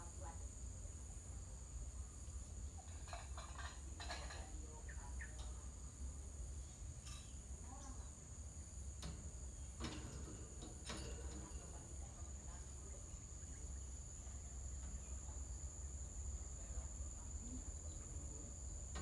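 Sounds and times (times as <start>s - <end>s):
insects droning: 0.0s - 19.0s
bird chirps: 4.8s - 5.6s, 12.8s - 16.0s.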